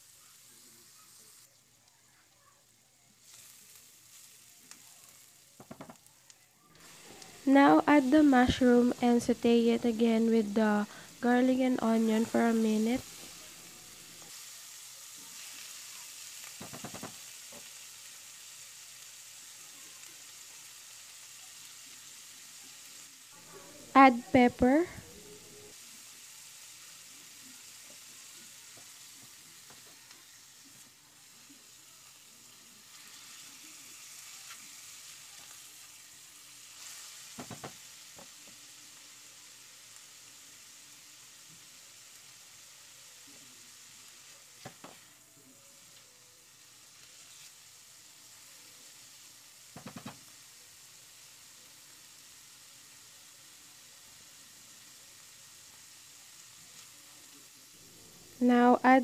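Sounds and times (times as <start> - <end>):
food sizzling in frying pan: 0.0 - 59.0
stirring knocks against pan: 5.6 - 6.0, 16.6 - 17.2.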